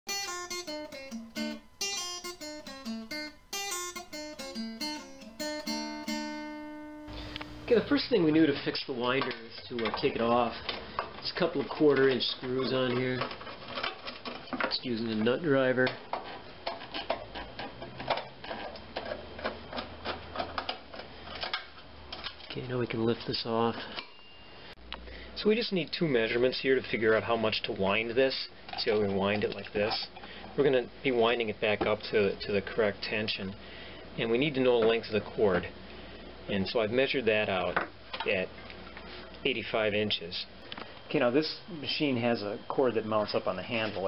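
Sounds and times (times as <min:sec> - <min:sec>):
acoustic guitar melody: 0:00.1 - 0:08.2.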